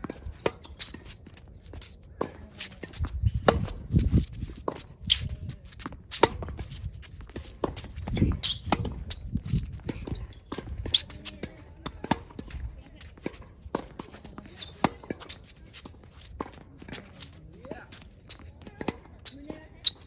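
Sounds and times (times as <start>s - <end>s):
racket striking tennis ball: 0.0s - 1.2s, 2.2s - 12.6s, 13.2s - 17.3s
shoes squeaking and thudding: 0.0s - 20.0s
ball bouncing on hard court: 2.2s - 15.4s.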